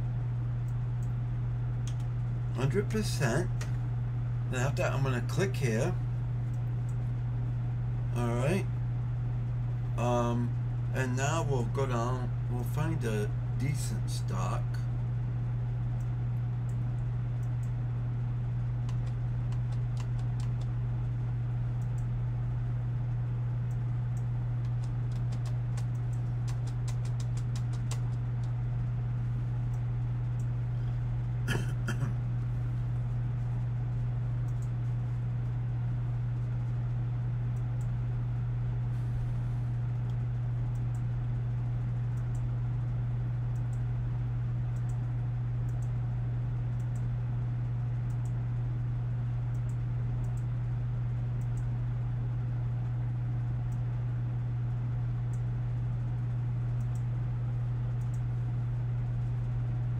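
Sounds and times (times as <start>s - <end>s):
low hum: 0.0s - 59.9s
computer mouse clicks: 18.8s - 20.8s, 23.7s - 28.5s, 34.5s - 34.7s, 44.8s - 45.0s, 45.7s - 45.9s, 48.1s - 48.3s, 51.4s - 51.7s, 58.0s - 58.2s.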